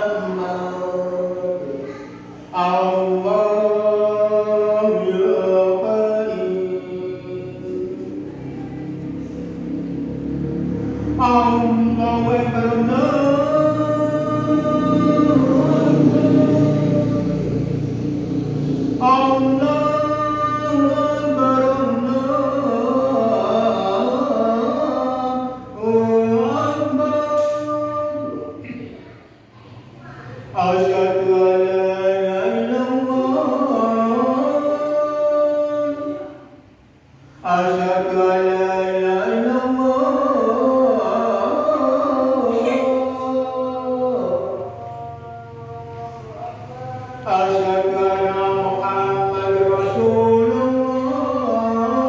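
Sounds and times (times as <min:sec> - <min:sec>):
man chanting into a microphone: 0:00.0 - 0:52.0.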